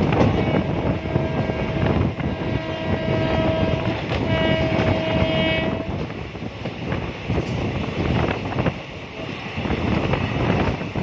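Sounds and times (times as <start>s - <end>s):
train rumbling on rails: 0.0s - 11.0s
train horn blasts: 0.1s - 6.1s.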